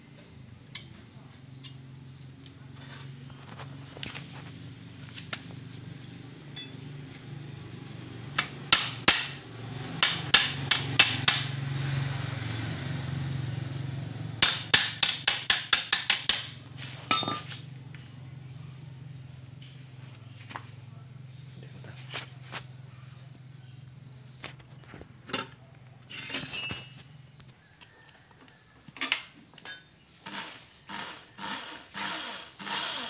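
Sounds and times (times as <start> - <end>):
hammer striking metal: 8.4 - 9.4, 10.0 - 11.6, 14.4 - 17.5.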